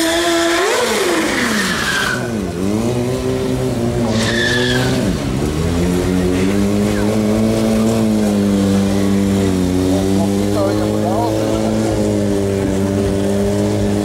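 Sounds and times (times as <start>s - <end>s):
tyre squeals: 0.0s - 2.5s, 4.0s - 5.2s
motorcycle engine revving: 0.0s - 14.0s.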